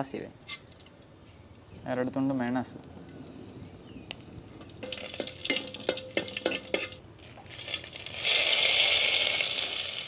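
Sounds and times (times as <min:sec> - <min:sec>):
small sharp pops in pot: 0:04.6 - 0:07.5
loud sizzle of hot oil: 0:04.7 - 0:10.0.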